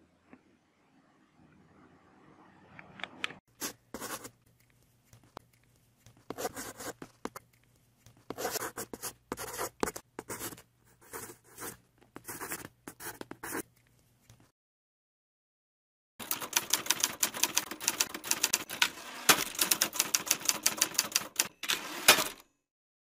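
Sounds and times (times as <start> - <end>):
pen scratching on paper: 3.6 - 4.4, 6.1 - 7.4, 8.1 - 13.7.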